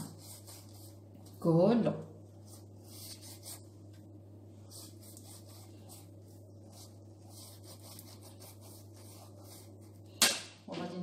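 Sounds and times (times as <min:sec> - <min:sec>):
pastry brush strokes on dough: 0:00.0 - 0:01.5, 0:02.4 - 0:03.8, 0:04.5 - 0:10.1
steady low hum: 0:00.0 - 0:11.0.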